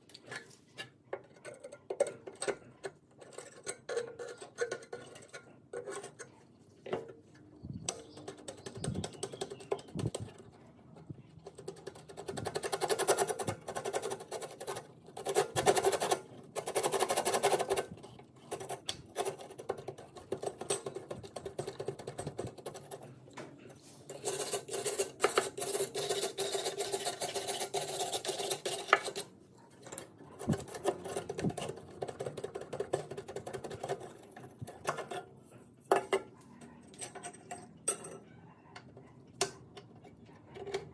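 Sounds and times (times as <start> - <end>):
metal parts clicking and rattling: 35.9 - 38.3.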